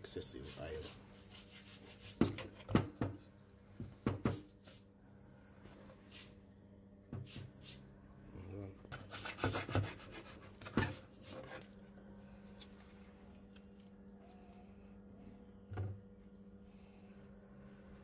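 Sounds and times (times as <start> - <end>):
steady low hum: 0.0 - 18.0
knife scraping on wooden board: 8.9 - 11.7.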